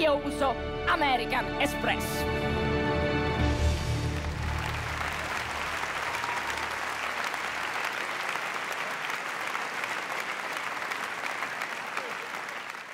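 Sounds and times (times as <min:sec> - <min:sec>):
audience applauding: 0:03.7 - 0:12.9.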